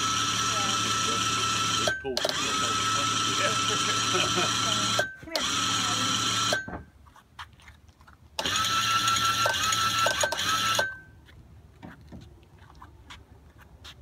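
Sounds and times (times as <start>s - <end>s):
windlass motor whining: 0.0s - 6.9s, 8.4s - 11.1s.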